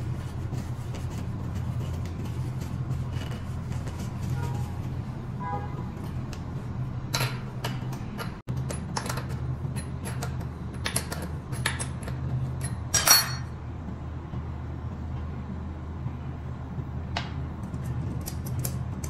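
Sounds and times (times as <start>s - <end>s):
metal tools clinking: 11.6s - 13.5s.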